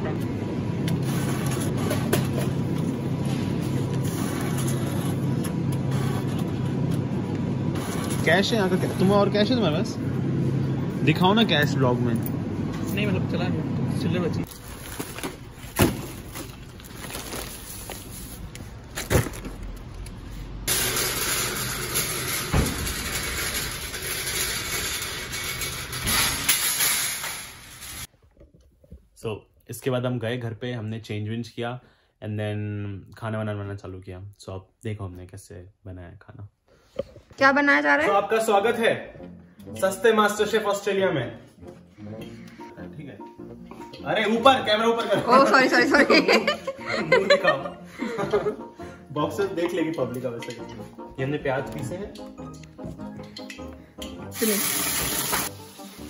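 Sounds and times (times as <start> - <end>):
machinery hum: 0.0 - 28.1
trolleys clattering together: 20.7 - 28.1
wire shopping trolley rattling: 20.7 - 28.1
trolley thump: 21.6 - 23.8.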